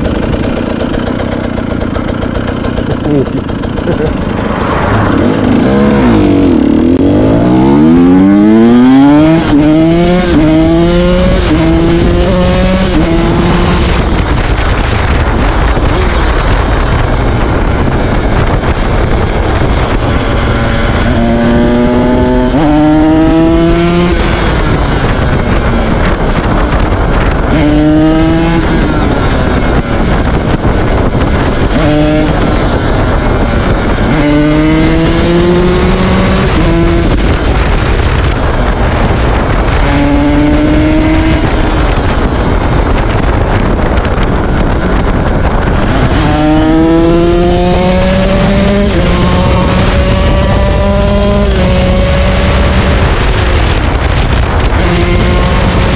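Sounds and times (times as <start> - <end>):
two-stroke engine revving: 0.0 - 14.9, 26.2 - 38.6, 44.5 - 55.9.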